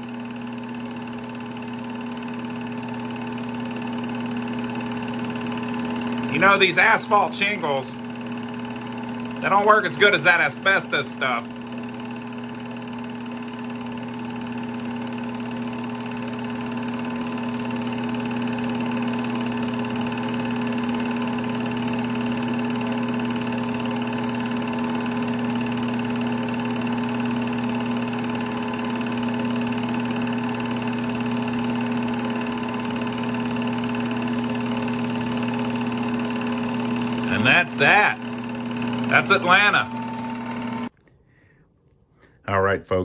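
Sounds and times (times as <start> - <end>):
movie projector whirring: 0.0 - 41.0.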